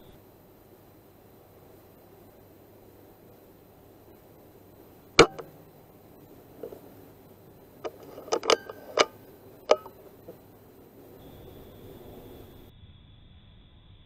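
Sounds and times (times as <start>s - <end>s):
air rifle shot: 5.2s - 5.6s
rifle metallic clicks: 7.8s - 10.4s.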